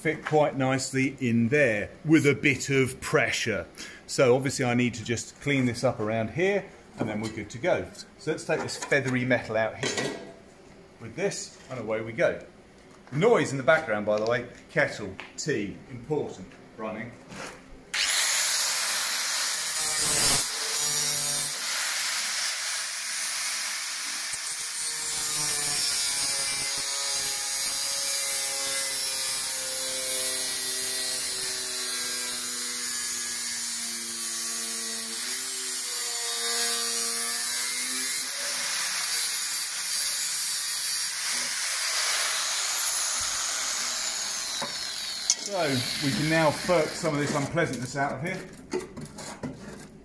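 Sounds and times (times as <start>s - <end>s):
angle grinder grinding steel: 18.0s - 47.5s.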